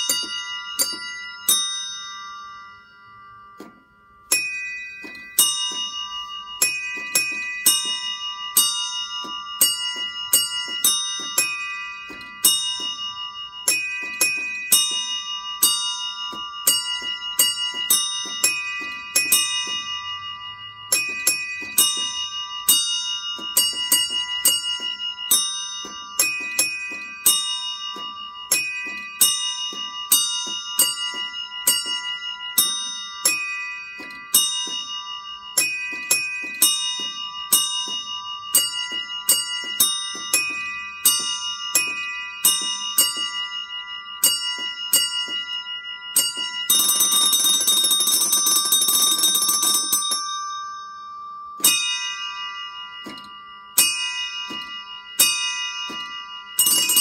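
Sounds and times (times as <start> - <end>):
bells struck in a pattern: 0.0 - 57.0.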